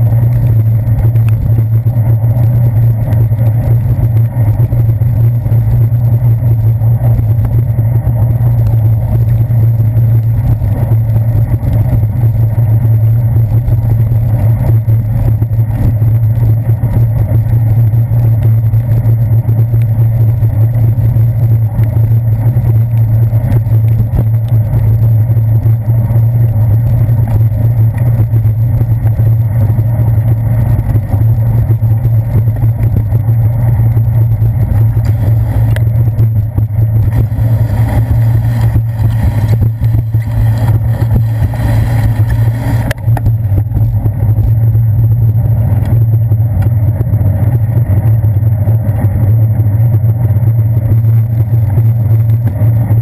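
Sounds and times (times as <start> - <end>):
handlebar vibration: 0.0 - 53.0
wind noise: 0.0 - 53.0
tyres on wet pavement: 32.6 - 44.5.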